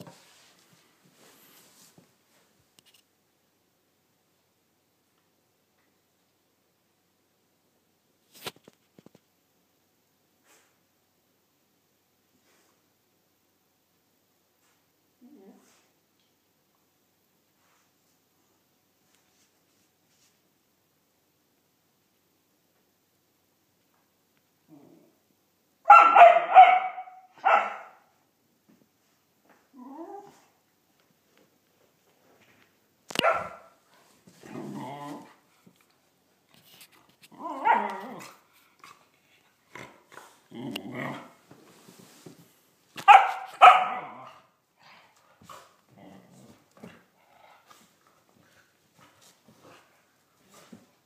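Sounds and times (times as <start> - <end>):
dog barking: 25.9 - 28.1, 33.2 - 33.8, 43.0 - 44.4
faint scuffling: 41.2 - 43.9, 45.2 - 51.0.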